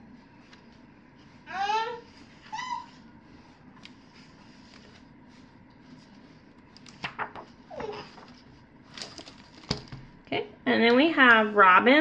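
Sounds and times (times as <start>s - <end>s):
book pages being turned: 0.3s - 1.4s, 2.0s - 10.1s
small child babbling: 1.5s - 3.0s.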